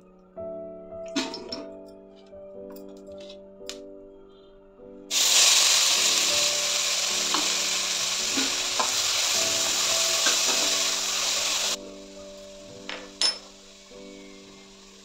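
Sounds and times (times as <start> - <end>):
onions sizzling in hot oil: 5.1 - 15.0.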